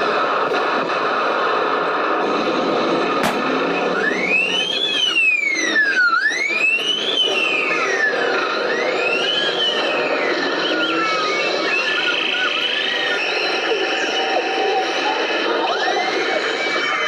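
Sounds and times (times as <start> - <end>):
wailing air-raid siren: 3.6 - 17.0.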